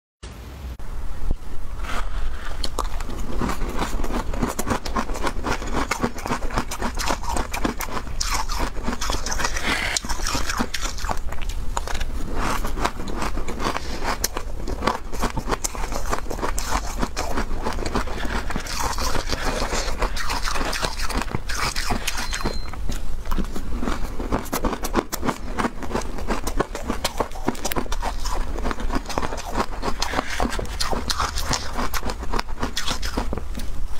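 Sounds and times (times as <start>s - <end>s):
crunching shaved ice: 2.0s - 33.7s
metal spoon scraping ice: 2.5s - 11.2s, 12.4s - 22.8s.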